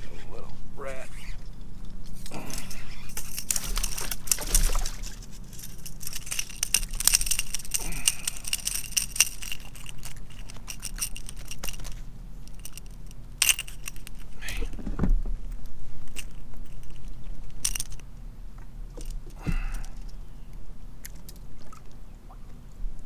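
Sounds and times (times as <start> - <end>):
fishing reel clicking: 5.6 - 11.8.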